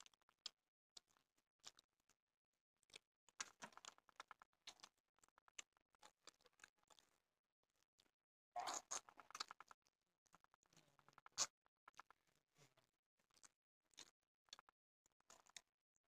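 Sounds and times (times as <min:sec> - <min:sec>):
chewing smacks: 0:08.0 - 0:09.8, 0:10.4 - 0:15.7.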